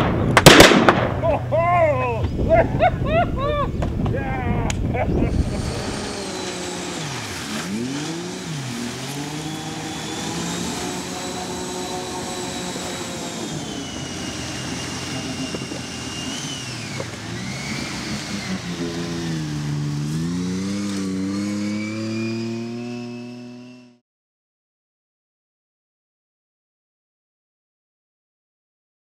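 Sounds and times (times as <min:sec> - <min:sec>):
vehicle engine running hard: 0:04.6 - 0:24.0.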